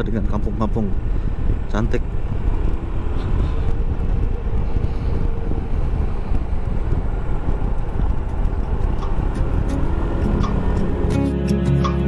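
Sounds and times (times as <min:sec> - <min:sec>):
wind buffeting microphone: 0:00.0 - 0:11.2
scooter engine running: 0:04.1 - 0:11.3.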